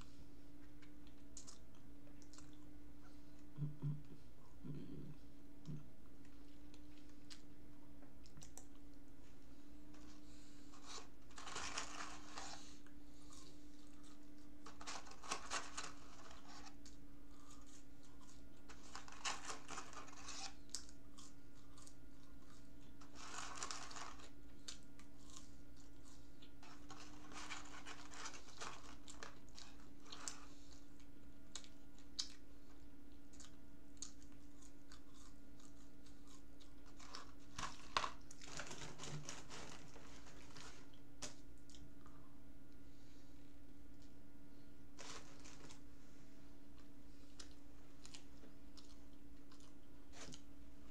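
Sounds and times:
chewing fries: 0.6 - 42.3, 46.7 - 50.9
paper carton rustling: 10.7 - 12.7, 14.7 - 16.8, 26.6 - 30.4, 37.0 - 40.9, 45.0 - 45.8.

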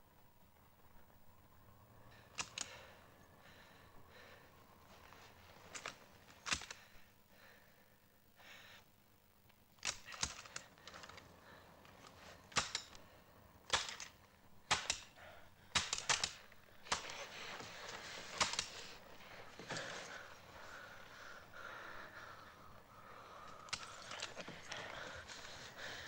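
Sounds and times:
rifle shots: 13.6 - 15.1, 15.7 - 17.1.

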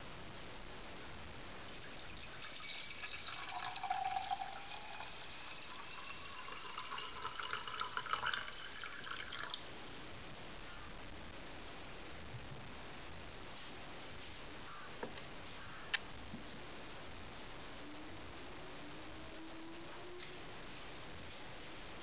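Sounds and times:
water pouring into metal pot: 1.8 - 9.6.

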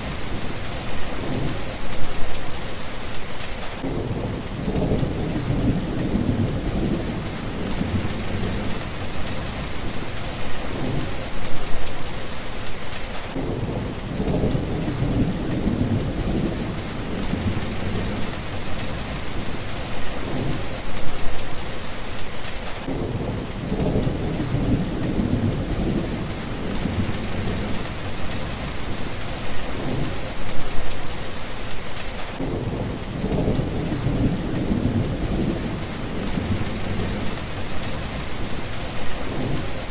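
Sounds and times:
heavy rain falling: 0.0 - 39.9
thunder rumbling: 3.8 - 10.0, 13.3 - 19.6, 22.8 - 30.3, 32.4 - 39.9.

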